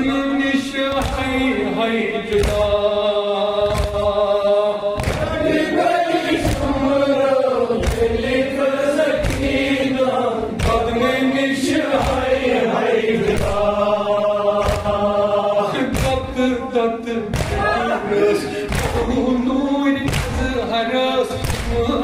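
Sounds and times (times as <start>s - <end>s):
man chanting into a microphone: 0.0s - 5.3s, 13.6s - 22.0s
group of men chanting: 0.0s - 22.0s.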